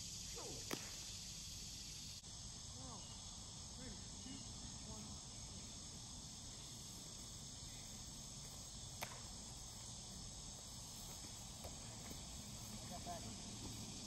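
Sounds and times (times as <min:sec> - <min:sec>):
insects singing: 0:00.0 - 0:14.0
sharp slap: 0:00.4 - 0:01.1, 0:08.9 - 0:09.4.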